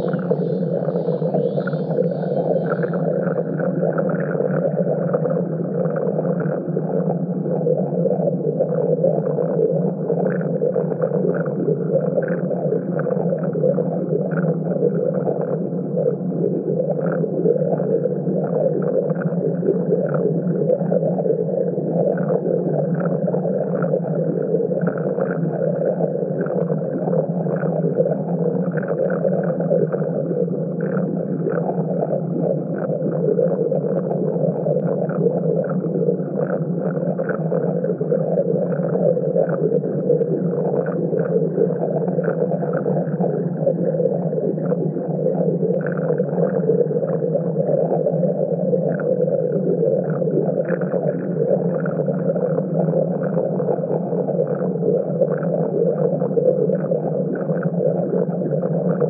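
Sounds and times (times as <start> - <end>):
synthesized low drone: 0.0 - 5.6.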